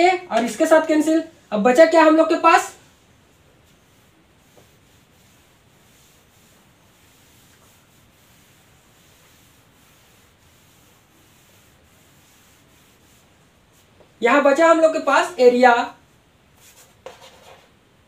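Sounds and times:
eraser rubbing on chalkboard: 3.6s - 14.0s, 16.6s - 17.8s.

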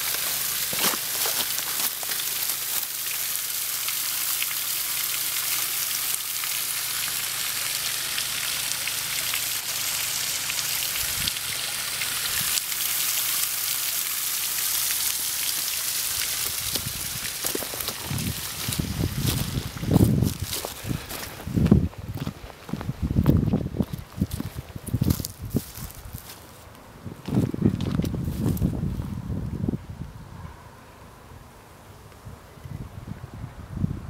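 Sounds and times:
water rushing down rocky stream: 0.0s - 21.7s.

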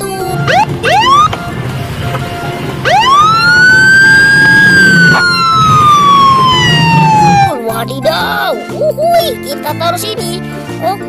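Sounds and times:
police siren wailing: 0.3s - 7.6s.

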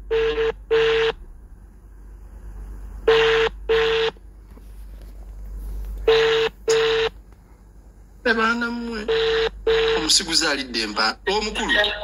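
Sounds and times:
telephone ringback tone: 6.1s - 7.1s.

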